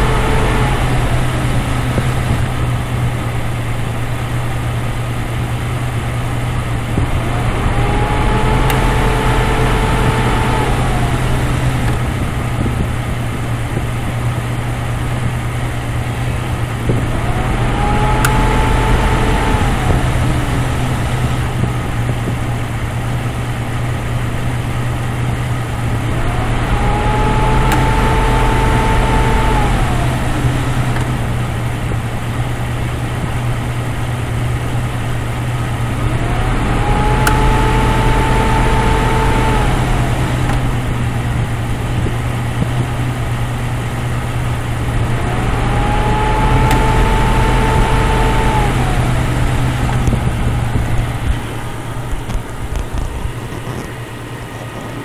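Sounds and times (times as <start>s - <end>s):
car engine idling: 0.0s - 55.0s
compressor whine: 0.0s - 55.0s
compressor clutch click: 16.9s - 22.3s, 26.0s - 31.6s, 35.9s - 43.2s, 44.8s - 55.0s.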